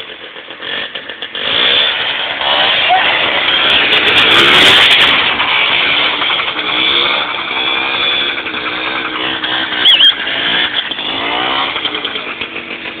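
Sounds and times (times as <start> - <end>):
two-stroke engine revving: 0.0 - 13.0
short high squeal: 9.8 - 10.2.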